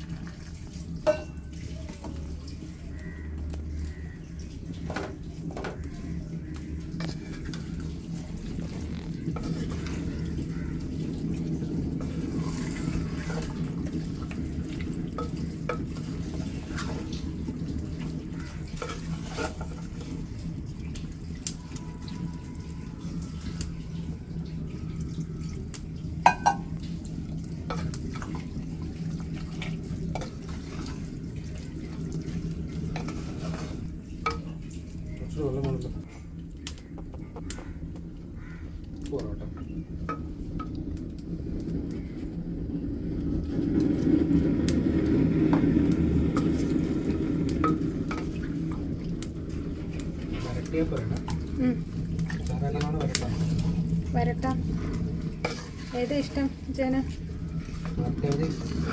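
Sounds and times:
steady low hum: 0.2 - 58.9
wooden spatula scraping a pot: 6.9 - 11.4, 12.0 - 17.4, 18.0 - 20.4, 29.4 - 34.4, 54.6 - 58.9.

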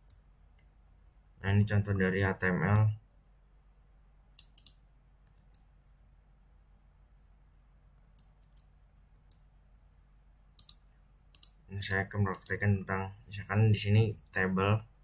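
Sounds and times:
faint low hum: 0.0 - 15.0
mouse and keyboard clicks: 4.4 - 5.7, 10.6 - 12.6.

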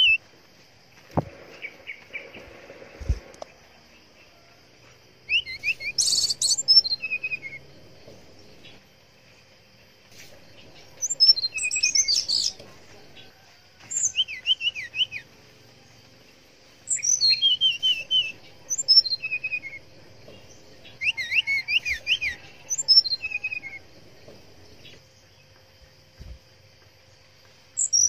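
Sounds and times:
bird singing whistled trills: 0.0 - 0.2, 5.2 - 7.7, 10.6 - 12.6, 13.2 - 15.3, 16.8 - 23.9, 27.8 - 28.0
faint insect hiss: 0.0 - 28.0.

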